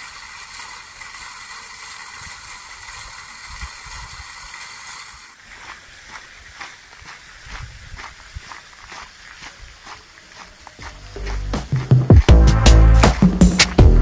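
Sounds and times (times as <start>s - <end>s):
fountain water splashing: 0.0s - 5.6s
footsteps on gravel: 5.3s - 12.5s.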